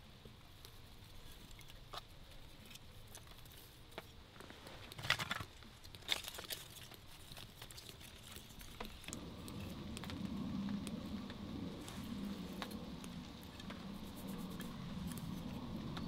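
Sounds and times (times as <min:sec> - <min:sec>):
fire crackling: 0:00.0 - 0:16.0
low steady rumble: 0:08.2 - 0:16.0.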